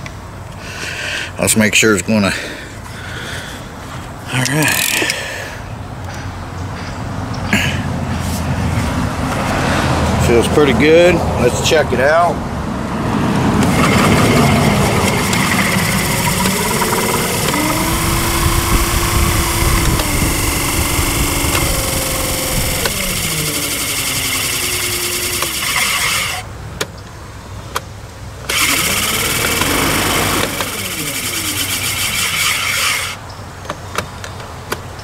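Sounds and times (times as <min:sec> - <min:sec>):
motor clicks: 0:04.3 - 0:05.2, 0:13.6 - 0:26.9, 0:27.8 - 0:34.1
electric motor propeller whirring: 0:13.5 - 0:26.5, 0:28.4 - 0:33.2.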